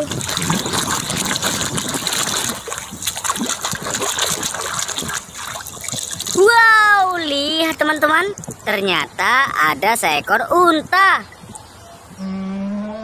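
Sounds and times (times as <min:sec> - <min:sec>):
water sloshing and splashing: 0:00.0 - 0:08.7.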